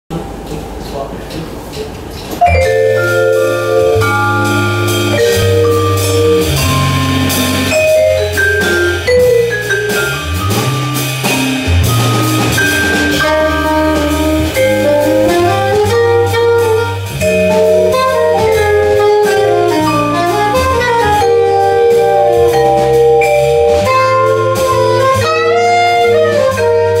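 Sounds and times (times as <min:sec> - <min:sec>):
bass: 0:00.1 - 0:27.0
drums: 0:00.1 - 0:27.0
vibraphone: 0:02.4 - 0:27.0
soprano saxophone: 0:13.2 - 0:22.8, 0:23.8 - 0:27.0.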